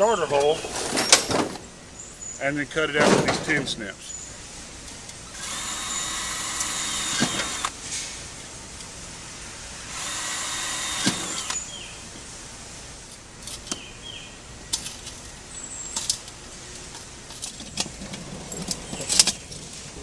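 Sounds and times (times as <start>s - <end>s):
cordless drill boring metal: 5.3s - 7.8s, 9.9s - 11.7s.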